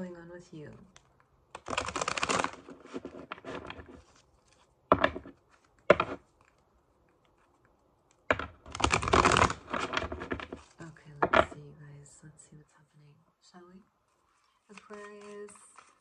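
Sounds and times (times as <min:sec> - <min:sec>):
cards being shuffled: 0:00.8 - 0:07.6, 0:08.2 - 0:11.6, 0:14.3 - 0:16.0.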